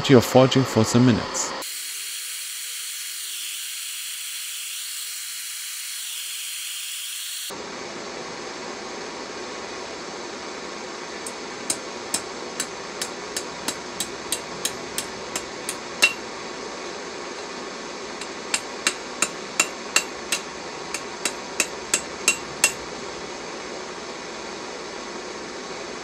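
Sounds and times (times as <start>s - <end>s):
hammer striking metal on anvil: 11.3s - 16.2s, 18.2s - 22.8s.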